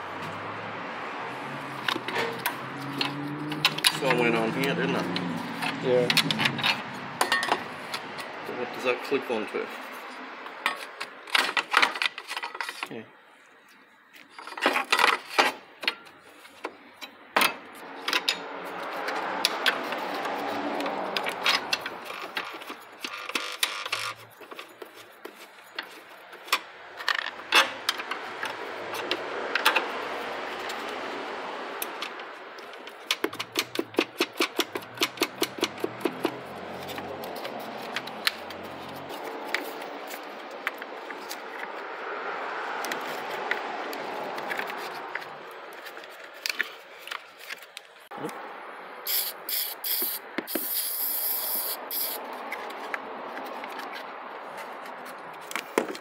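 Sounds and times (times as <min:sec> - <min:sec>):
metal scraping and knocking on plastic: 0:32.6 - 0:39.8
short hissy bursts: 0:49.1 - 0:52.2.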